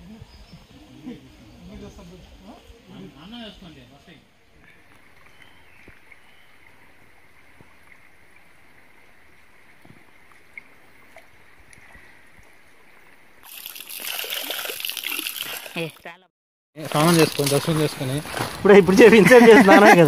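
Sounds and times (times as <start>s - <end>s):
faint stream rushing: 16.8s - 20.0s.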